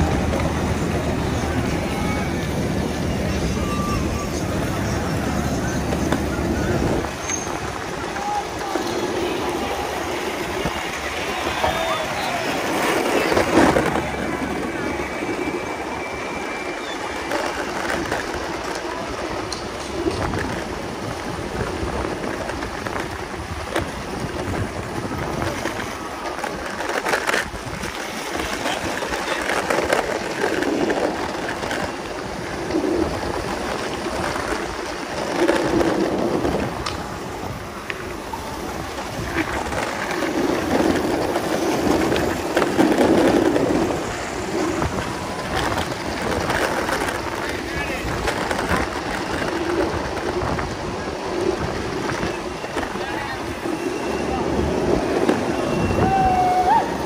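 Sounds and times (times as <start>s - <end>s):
skateboard wheels rolling: 0.0s - 57.0s
skateboard clacking over cracks: 5.5s - 7.8s, 17.2s - 53.5s.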